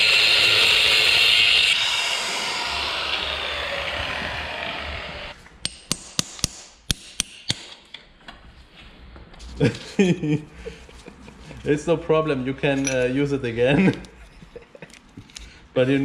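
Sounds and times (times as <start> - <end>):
angle grinder grinding metal: 0.0 - 5.4.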